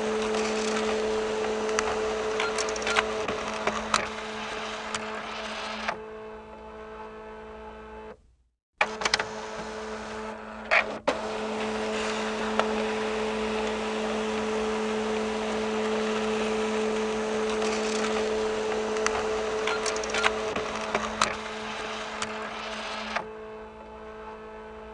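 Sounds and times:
fax machine hum: 0.0s - 8.2s, 8.8s - 24.9s
fax machine motor whirring: 0.0s - 8.2s, 8.8s - 24.9s
mechanical clicks: 1.7s - 4.1s, 19.0s - 21.4s.

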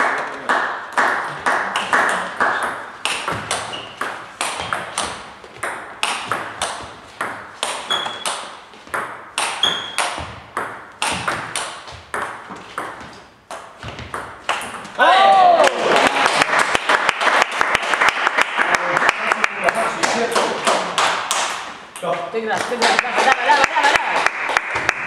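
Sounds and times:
table tennis balls clicking: 0.6s - 15.0s.

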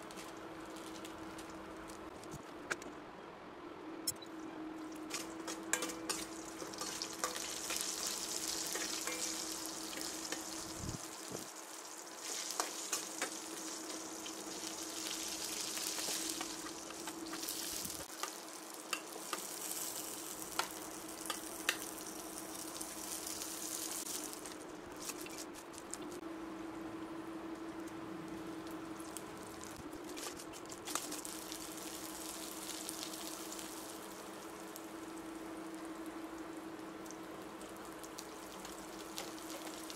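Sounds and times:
onions sizzling: 0.0s - 2.1s, 4.8s - 39.9s
steady low hum: 0.0s - 39.9s
spices sizzling in hot oil: 4.9s - 25.4s, 28.3s - 39.9s
metal spoon scraping a pan: 5.1s - 9.4s.

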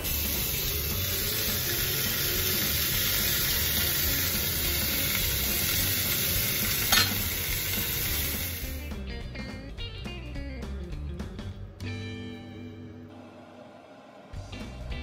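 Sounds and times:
food sizzling on hot plate: 0.0s - 8.8s
sharp clink: 6.9s - 7.2s.

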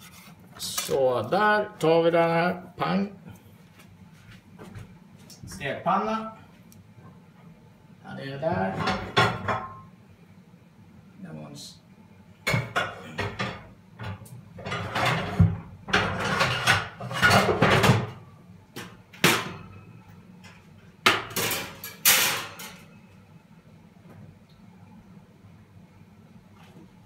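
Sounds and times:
utensil scraping: 0.0s - 1.0s
frying pan and utensils clattering: 8.7s - 9.8s, 12.5s - 18.2s, 19.2s - 19.9s, 21.1s - 22.9s.

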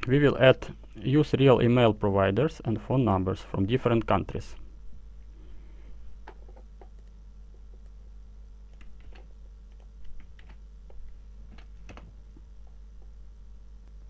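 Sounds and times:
steady low hum: 0.0s - 14.0s
computer keyboard typing: 8.7s - 10.6s.

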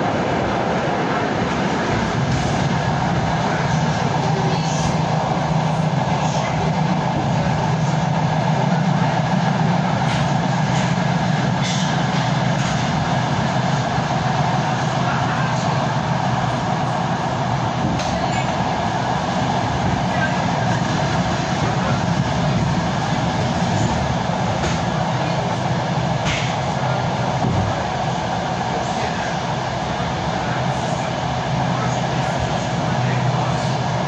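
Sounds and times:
moving train rumble: 0.0s - 34.0s.

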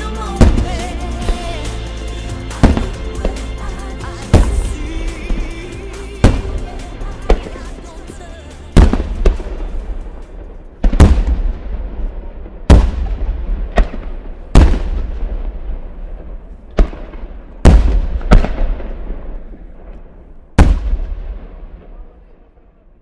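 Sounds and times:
firework shells bursting: 0.4s - 11.5s.

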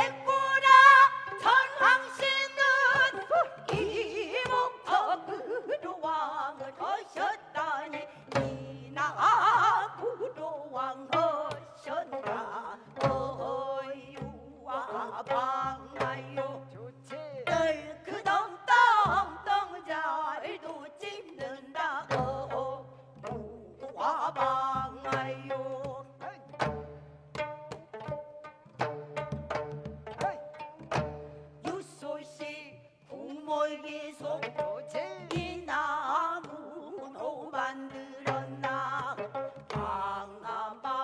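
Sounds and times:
women singing: 0.0s - 26.6s, 31.6s - 41.0s
barrel drum beats: 24.5s - 31.9s.

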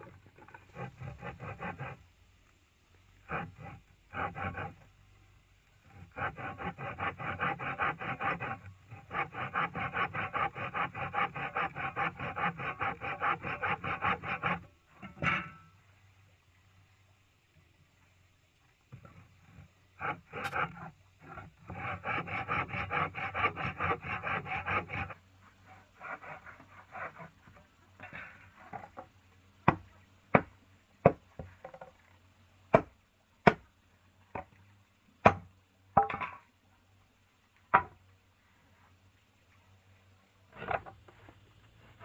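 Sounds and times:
soft scraping on wood: 0.0s - 5.0s, 5.6s - 15.6s, 18.9s - 29.2s, 40.5s - 42.0s
rasping strokes on wood: 0.4s - 2.2s, 3.1s - 5.0s, 5.7s - 15.2s, 19.0s - 29.0s
sharp knocks on wood: 29.6s - 31.9s, 32.7s - 33.6s, 35.2s - 36.3s, 37.7s - 38.0s.

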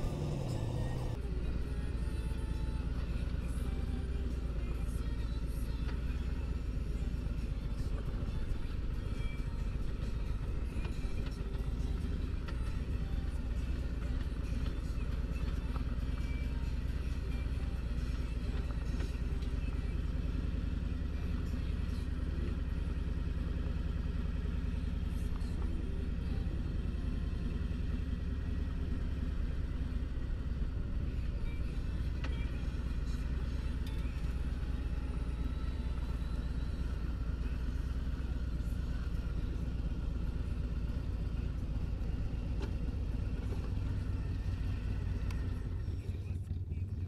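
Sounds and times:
motorcycle engine rumbling: 0.0s - 1.2s.

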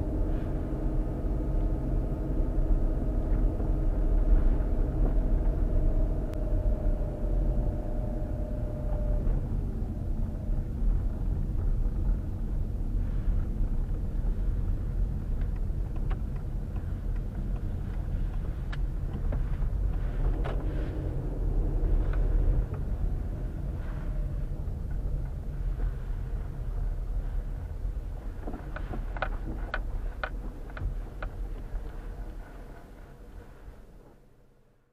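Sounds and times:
car engine and road rumble: 0.0s - 34.9s
clicks and creaks: 28.4s - 33.0s.

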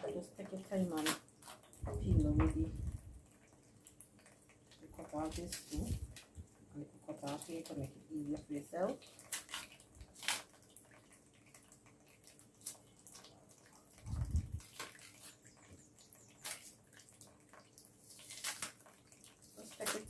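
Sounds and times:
knife scraping plantain peel: 5.0s - 6.3s, 9.0s - 10.6s, 14.0s - 15.8s, 16.4s - 16.8s, 18.0s - 20.0s.

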